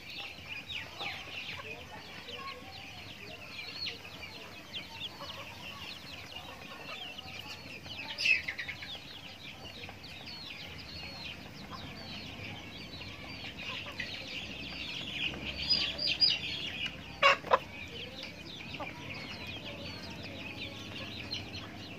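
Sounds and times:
chickens chirping and clucking: 0:00.0 - 0:21.9.

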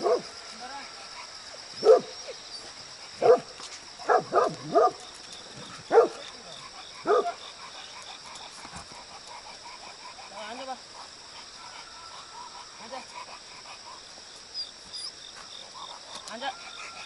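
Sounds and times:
dog barking aggressively: 0:00.0 - 0:00.3, 0:01.8 - 0:02.2, 0:03.2 - 0:05.0, 0:05.8 - 0:06.3, 0:07.0 - 0:07.5.

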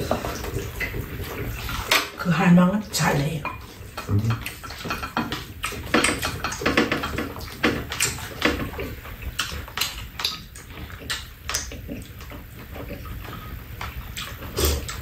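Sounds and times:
chewing and slurping: 0:00.0 - 0:02.2, 0:03.4 - 0:15.0
utensils clicking against bowls: 0:03.1 - 0:15.0.

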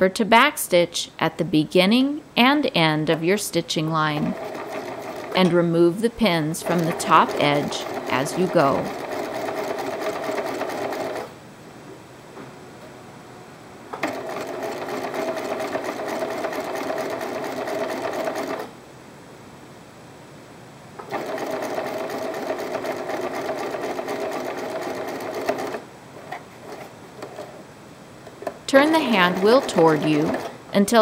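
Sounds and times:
sewing machine stitching: 0:04.0 - 0:05.6, 0:06.3 - 0:11.3, 0:14.0 - 0:18.7, 0:21.0 - 0:27.6, 0:28.4 - 0:30.6.

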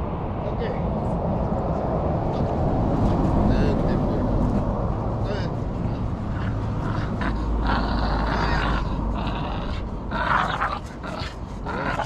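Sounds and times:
dog growling: 0:05.8 - 0:12.0.

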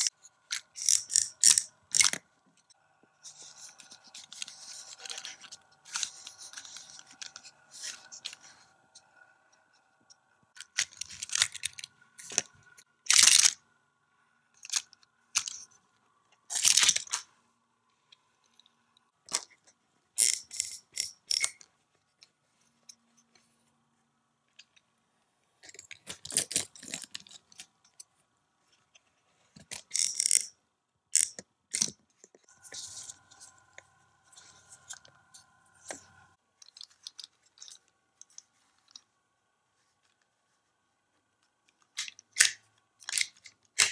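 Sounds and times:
plastic toy parts clicking: 0:00.0 - 0:02.2, 0:10.5 - 0:13.6, 0:14.6 - 0:15.7, 0:16.5 - 0:17.2, 0:20.2 - 0:21.7, 0:29.6 - 0:32.0, 0:41.7 - 0:43.9.

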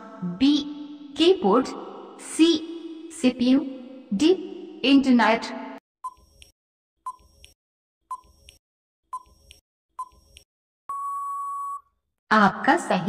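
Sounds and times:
long steady beep: 0:10.9 - 0:11.9
short beeps: 0:10.9 - 0:11.9.

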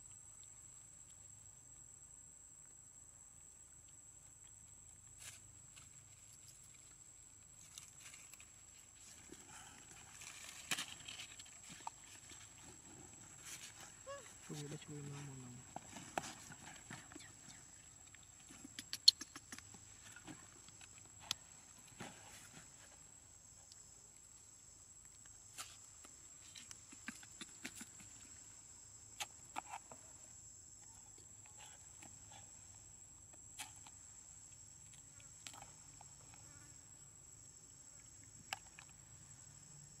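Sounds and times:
sharp clicks and snaps: 0:18.1 - 0:19.7.

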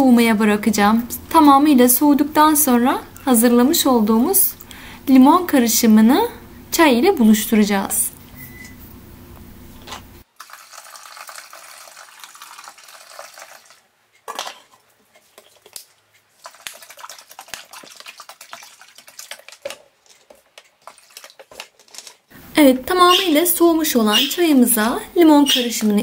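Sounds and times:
liquid poured into metal bowl: 0:10.4 - 0:13.8, 0:16.4 - 0:21.7
dishes clinking and knocking: 0:14.3 - 0:14.8.

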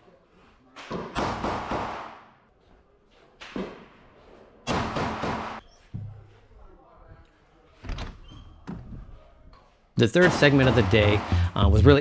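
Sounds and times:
gunshots ringing indoors: 0:01.0 - 0:02.4, 0:04.7 - 0:05.6.

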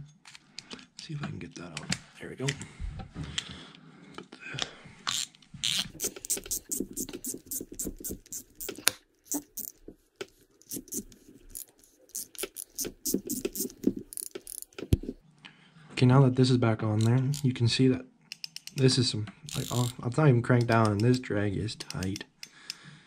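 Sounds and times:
fishing reel drag clicking: 0:19.5 - 0:20.0.

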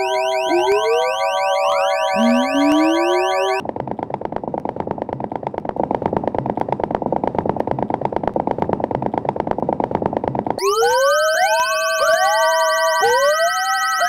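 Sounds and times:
rapid pulsing electronic noise: 0:00.0 - 0:03.6
rising siren-like wail: 0:00.0 - 0:03.6, 0:10.6 - 0:14.0.

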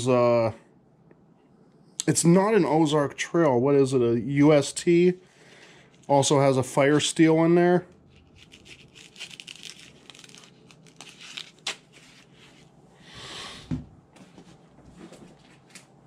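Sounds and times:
rustling fabric: 0:08.0 - 0:12.8.

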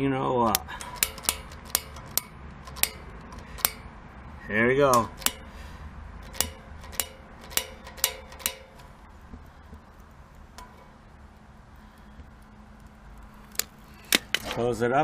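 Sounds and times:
utility lighter clicking: 0:00.5 - 0:03.9, 0:04.9 - 0:10.8, 0:11.9 - 0:14.4.

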